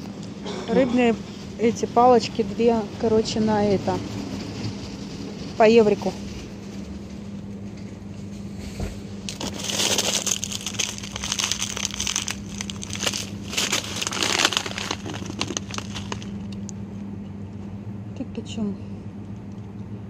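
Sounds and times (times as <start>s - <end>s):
steady low hum: 0.0s - 20.0s
plastic packaging crinkling: 9.3s - 16.7s.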